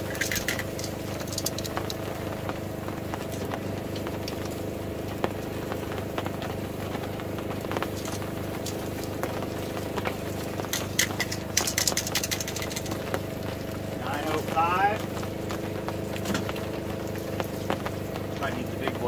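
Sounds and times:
low mechanical hum: 0.0 - 19.0
wood fire crackling: 0.0 - 19.0
metal tongs clicking on grate: 0.1 - 1.7, 10.7 - 13.0.

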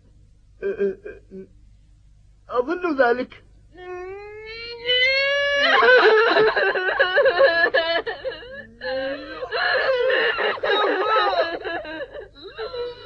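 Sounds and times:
girl wailing and sobbing: 3.8 - 13.0.

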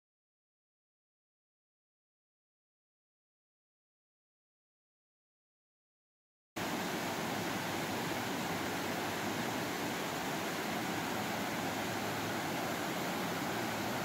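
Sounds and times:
waterfall rushing: 6.6 - 14.0.

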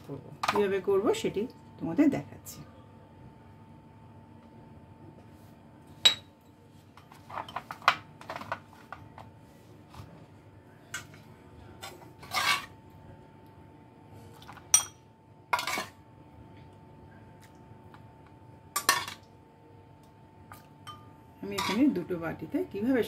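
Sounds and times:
spoon clinking on pot and bowls: 6.0 - 6.5, 14.7 - 15.0, 18.8 - 19.3, 20.5 - 21.8.

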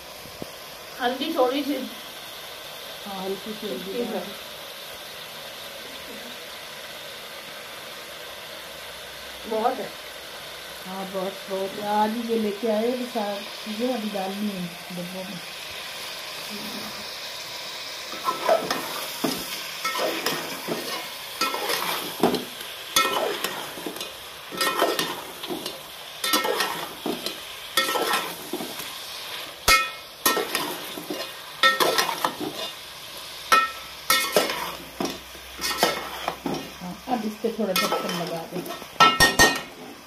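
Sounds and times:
meat sizzling in a pot: 0.0 - 40.0
spoon scraping a metal pot: 35.6 - 36.7.

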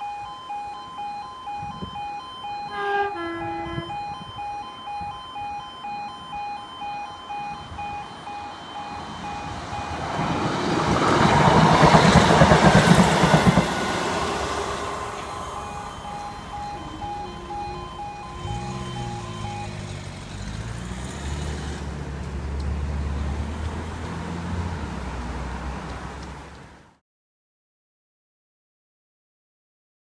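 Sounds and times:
level crossing alarm pulsing: 0.0 - 20.9
train passing over crossing: 0.2 - 26.7
two-tone train horn: 2.6 - 4.4, 14.0 - 19.5.

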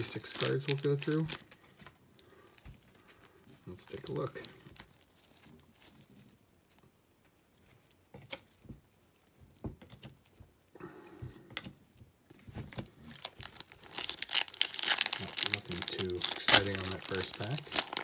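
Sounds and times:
wrapper crinkling: 0.0 - 6.2, 13.0 - 18.0.

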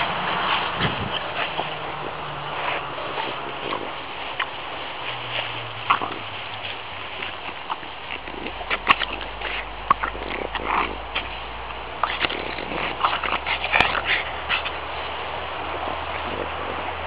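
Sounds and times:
dog sniffing and snuffling: 0.0 - 17.0
grass rustling: 0.0 - 17.0.

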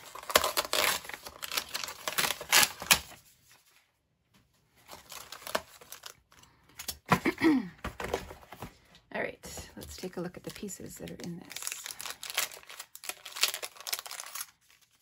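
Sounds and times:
plastic packet crinkling: 10.0 - 15.0.

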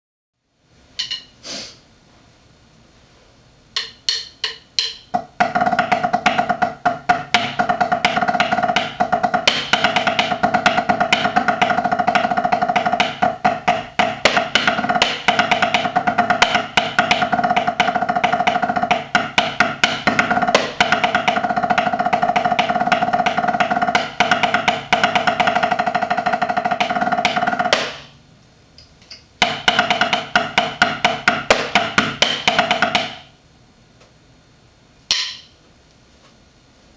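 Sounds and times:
drumsticks on practice pad: 0.9 - 1.4, 3.7 - 6.0, 35.1 - 35.6.

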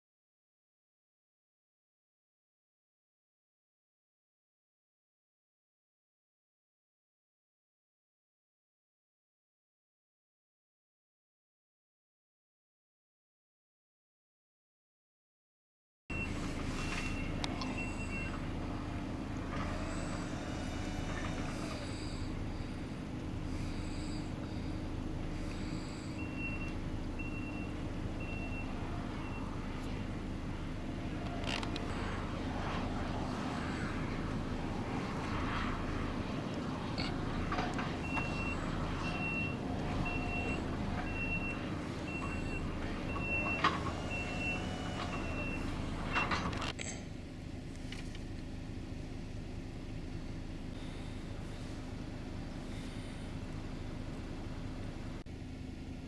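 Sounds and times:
reversing alarm beeps: 16.1 - 19.0, 25.5 - 29.8, 38.0 - 46.5
diesel engine droning: 16.1 - 56.0.

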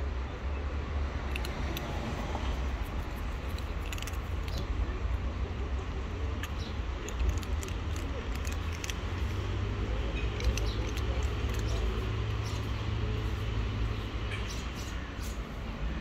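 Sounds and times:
kittens crunching dry kibble: 1.3 - 5.0, 6.2 - 13.5.

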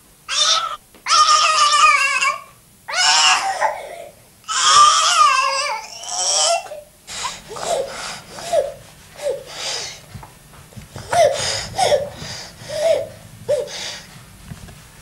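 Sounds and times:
toddler crying: 0.3 - 6.9, 11.0 - 13.8.

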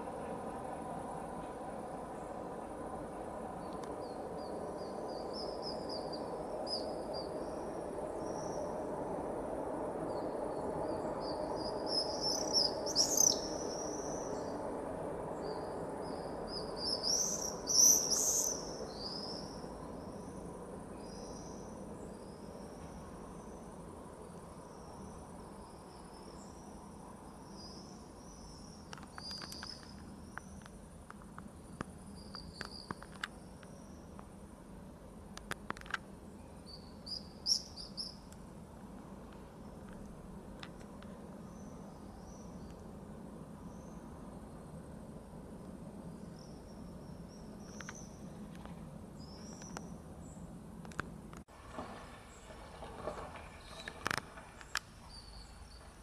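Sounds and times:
distant city hum: 0.0 - 56.0
birds chirping in flight: 10.9 - 14.5
faint clicks: 35.3 - 36.1.

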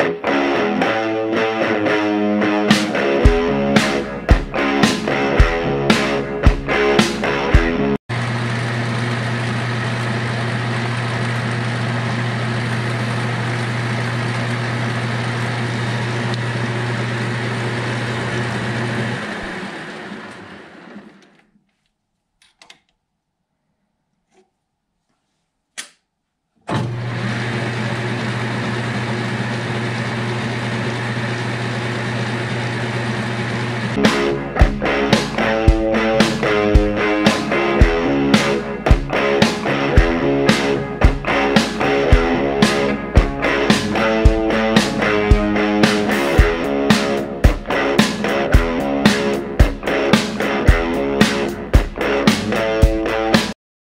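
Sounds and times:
lathe motor hum: 8.1 - 21.3, 26.7 - 34.0
metal cutting noise: 31.0 - 53.5.

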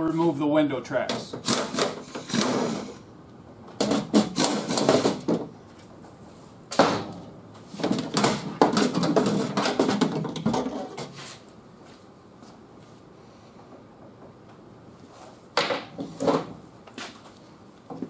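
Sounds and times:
metal rattling and scraping: 7.7 - 11.2.

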